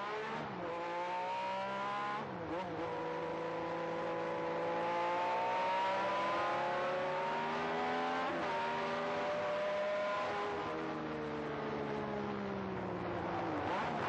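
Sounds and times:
race car engine accelerating: 0.0s - 10.8s.

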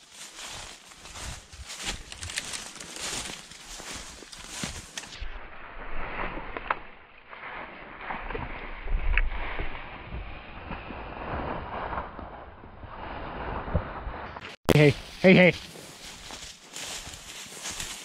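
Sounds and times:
footsteps: 0.0s - 5.2s, 13.4s - 18.0s
dry brush crackling and scraping: 0.0s - 12.4s, 13.0s - 18.0s
wind rumbling on microphone: 5.2s - 14.4s.

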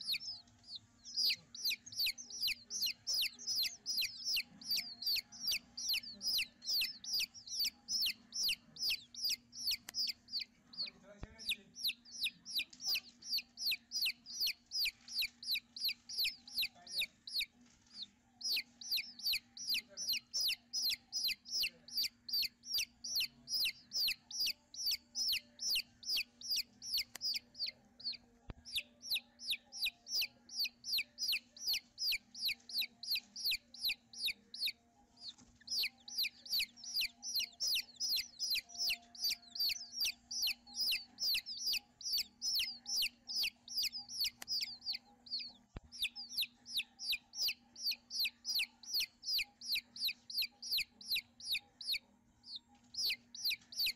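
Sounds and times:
nestlings begging with high chirps: 0.0s - 53.9s.

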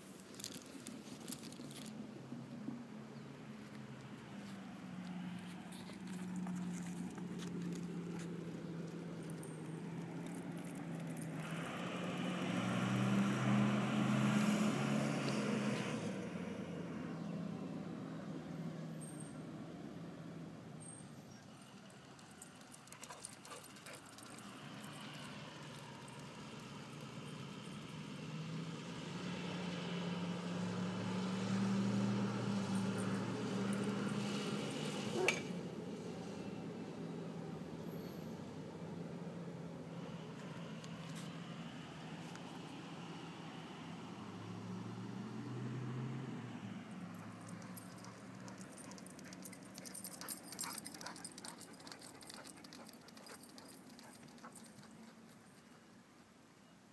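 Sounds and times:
van engine passing: 0.0s - 56.0s
dog paws pattering and clicking: 3.6s - 11.5s, 21.6s - 27.3s, 47.1s - 55.8s.

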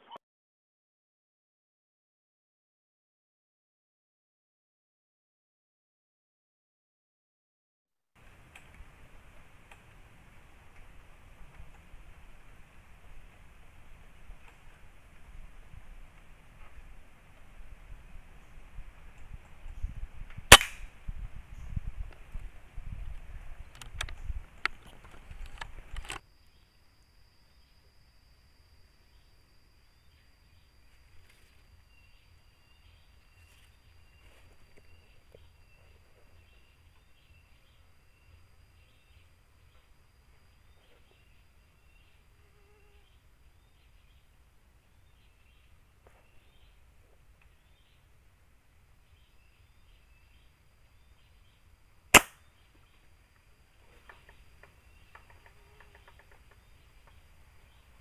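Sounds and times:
air rifle shot crack: 20.5s - 20.9s, 52.1s - 52.4s
faint clicks and rustles: 23.0s - 26.2s.

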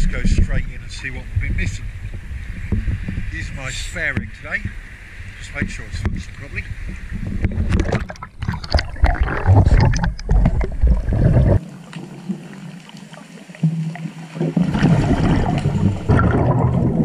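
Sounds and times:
scuba exhale bubbles underwater: 7.6s - 17.0s.

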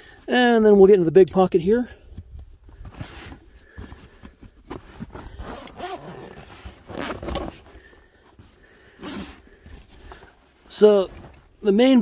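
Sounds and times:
fabric scraping: 4.8s - 7.8s
zipper being pulled open: 5.0s - 7.8s, 9.0s - 9.6s.

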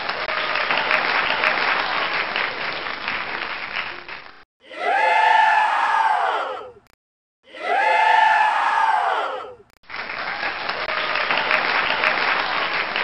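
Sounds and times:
crowd applauding: 0.0s - 4.5s, 9.8s - 13.0s
crowd cheering and yelling: 4.6s - 6.8s, 7.5s - 9.7s.

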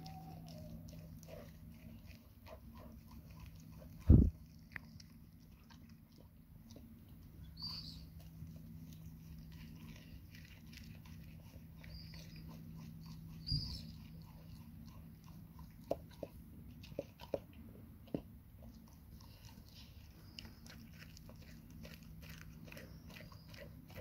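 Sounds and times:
dog chewing food: 0.0s - 24.0s.

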